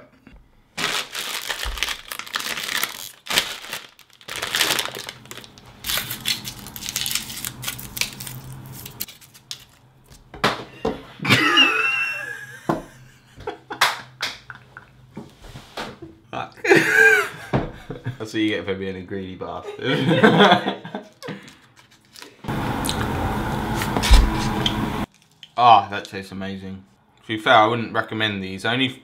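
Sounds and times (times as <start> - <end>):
candy wrapper crinkling: 0.8 - 10.2, 21.4 - 22.4.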